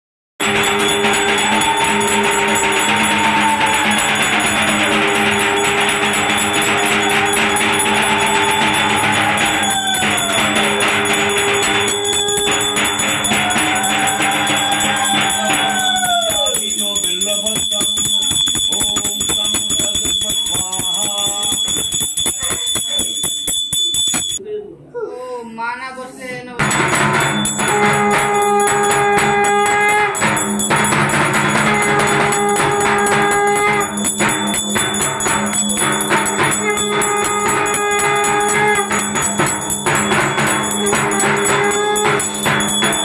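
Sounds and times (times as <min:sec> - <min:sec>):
devotional music: 0:00.4 - 0:16.9
hand bell ringing rapidly: 0:00.4 - 0:24.4, 0:26.6 - 0:43.0.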